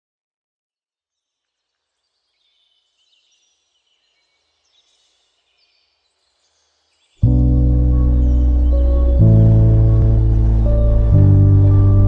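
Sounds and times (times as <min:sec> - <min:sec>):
high bird chirps: 0:02.1 - 0:11.1
low hum: 0:07.2 - 0:12.0.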